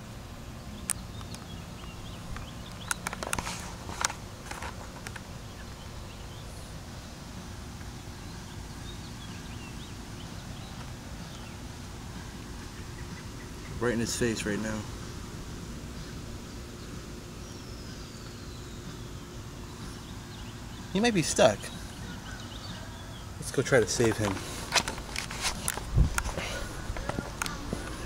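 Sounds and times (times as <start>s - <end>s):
sharp clicks and rustles: 0.9s - 5.3s, 23.9s - 28.0s
steady low rumble: 3.7s - 28.0s.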